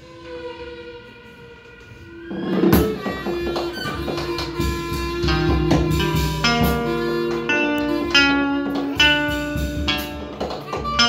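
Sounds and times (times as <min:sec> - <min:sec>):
electric guitar picking notes: 0:00.0 - 0:11.0
violin: 0:00.0 - 0:11.0
drums: 0:01.9 - 0:11.0.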